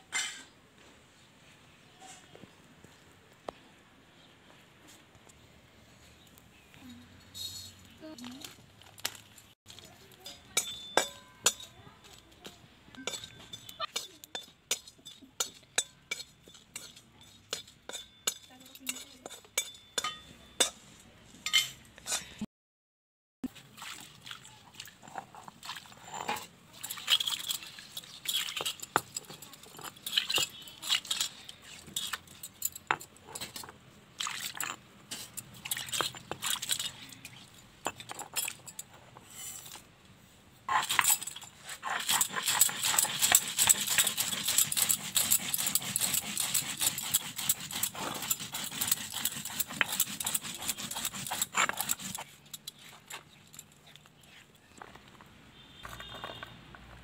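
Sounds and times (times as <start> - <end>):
stone roller grinding on stone: 25.0 - 26.5, 40.7 - 53.4.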